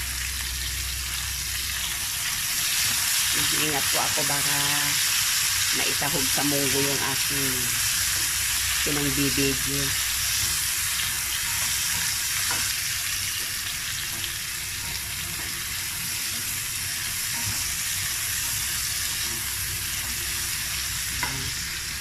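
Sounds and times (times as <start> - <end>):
meat and onion sizzling in oil: 0.0 - 22.0
spatula stirring in pan: 10.0 - 22.0.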